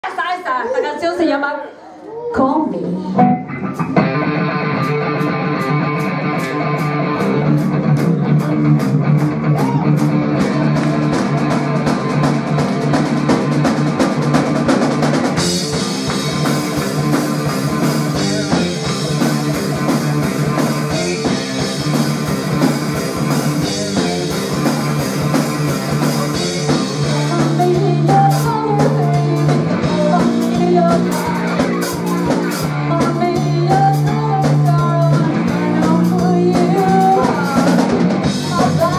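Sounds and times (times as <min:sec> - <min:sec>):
live rock band playing: 0:02.8 - 0:38.9
woman singing: 0:27.0 - 0:32.2, 0:32.8 - 0:38.9.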